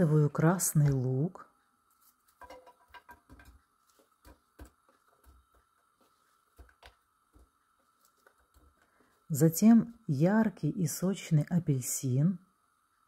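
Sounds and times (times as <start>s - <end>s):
onion pieces tapping in a pan: 2.3s - 7.7s.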